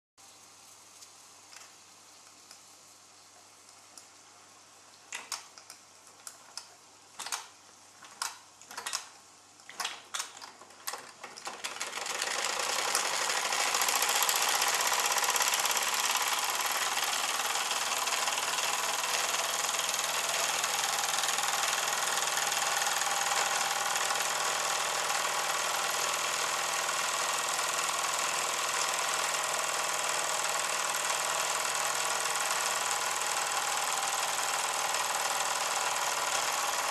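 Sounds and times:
small moving parts clattering: 5.1s - 15.4s.

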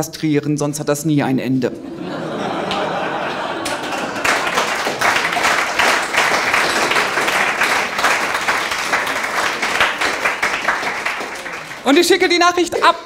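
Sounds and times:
audience applauding: 2.3s - 12.7s.

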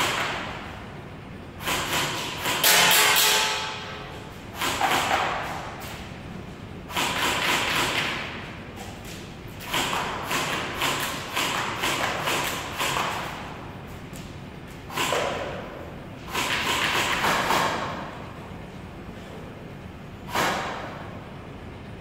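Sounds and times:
airsoft guns firing: 1.6s - 3.9s.

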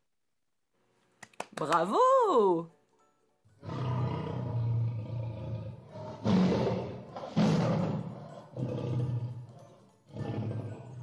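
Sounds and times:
lion roaring: 3.6s - 11.0s.

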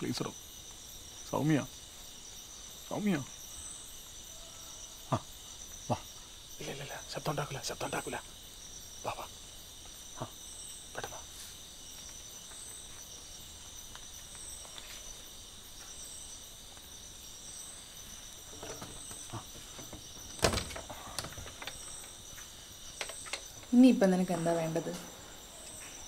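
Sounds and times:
crickets chirring: 0.0s - 26.0s
window opening clack: 18.5s - 21.8s.

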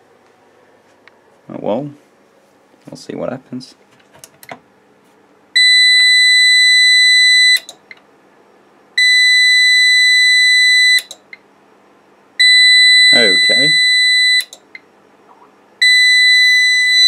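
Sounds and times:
faint steady hum: 0.0s - 17.0s
alarm buzzer long beeps: 5.6s - 7.8s, 9.0s - 11.2s, 12.4s - 14.6s, 15.8s - 17.0s.

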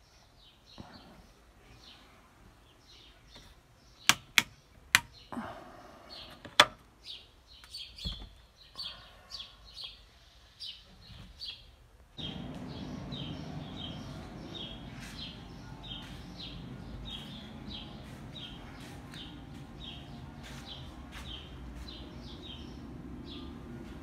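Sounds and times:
birds chirping: 0.0s - 24.0s
rocker switches clicking: 4.1s - 5.2s.

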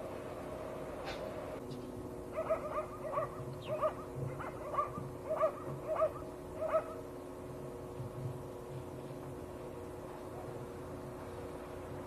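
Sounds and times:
steady low hum: 0.0s - 12.0s
dog yapping: 2.3s - 7.0s.

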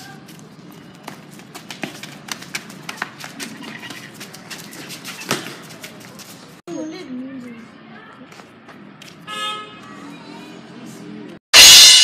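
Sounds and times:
children running on pavement: 0.0s - 6.6s.

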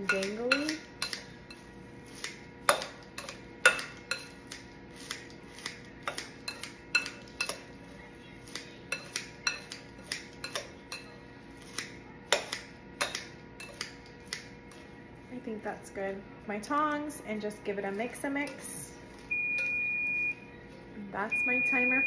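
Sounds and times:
knife chopping on cutting board: 11.6s - 14.5s.

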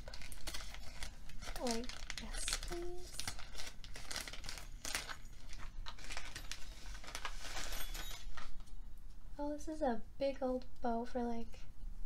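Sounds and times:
wrapping paper crinkling and tearing: 0.0s - 8.7s.

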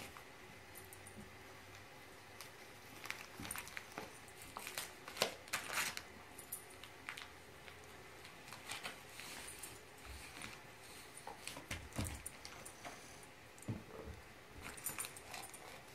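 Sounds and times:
wrapping paper crinkling: 2.4s - 6.1s, 6.8s - 9.6s.

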